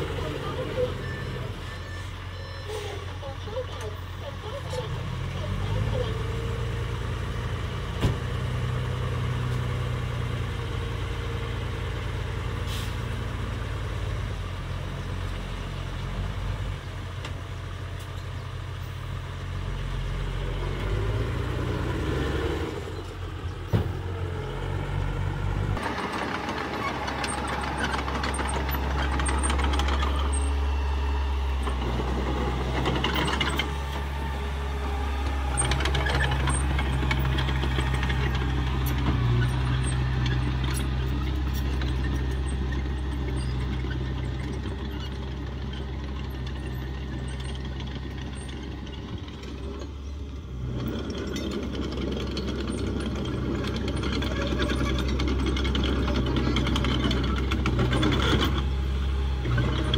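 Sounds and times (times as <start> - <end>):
bulldozer diesel engine: 0.0 - 59.9
dump truck diesel engine: 0.0 - 59.9
tracks rattling: 25.8 - 30.7, 31.6 - 58.8.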